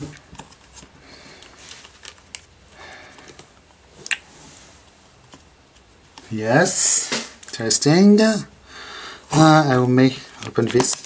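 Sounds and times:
plastic cartridge rustling: 0.0s - 6.3s, 9.4s - 11.0s.

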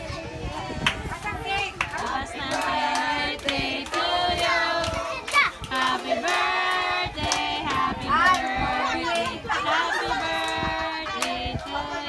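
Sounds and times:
hand claps: 1.8s - 8.5s
group of people singing: 1.8s - 12.0s.

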